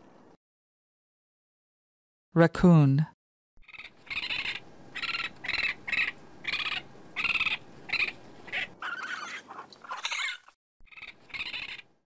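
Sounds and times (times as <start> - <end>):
raccoon calling: 3.6 - 12.0.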